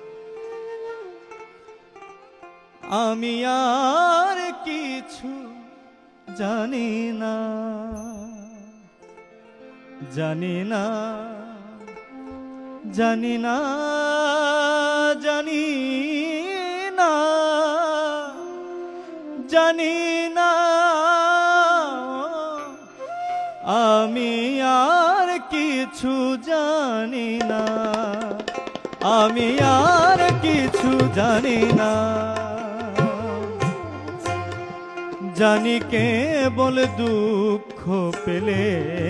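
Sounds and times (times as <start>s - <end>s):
tabla drumming: 26.6s - 39.0s
ornamented instrumental melody: 27.5s - 39.0s.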